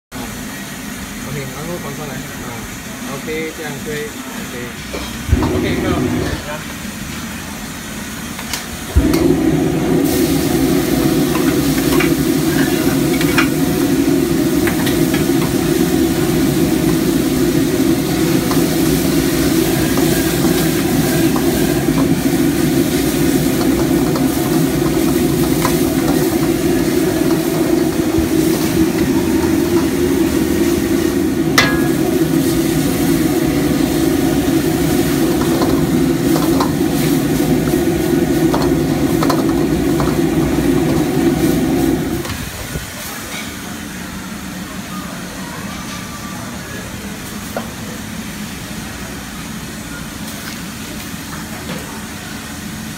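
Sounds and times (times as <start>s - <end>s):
porridge frying in a wok: 0.2s - 52.9s
metal ladle clinking on wok: 31.6s - 32.2s.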